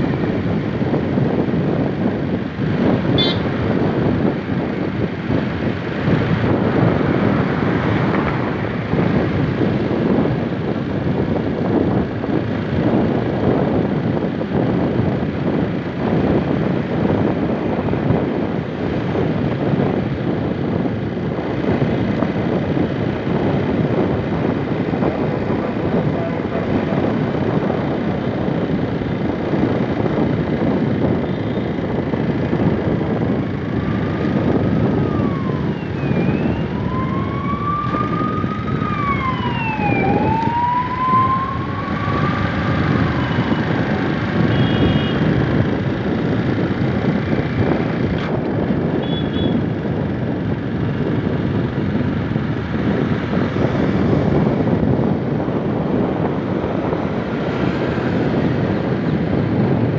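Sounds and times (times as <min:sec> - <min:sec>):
road noise: 0:00.0 - 0:59.9
rushing wind: 0:00.0 - 0:59.9
siren wailing: 0:33.7 - 0:45.2.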